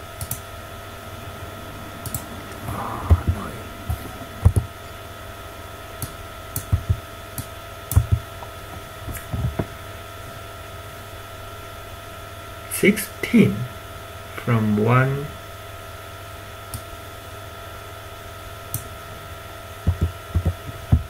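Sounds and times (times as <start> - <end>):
steady background hum: 0.0 - 21.0.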